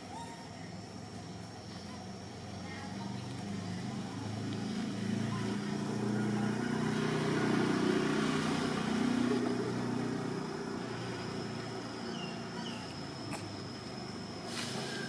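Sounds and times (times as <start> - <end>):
vehicle engine passing by: 3.0 - 15.0.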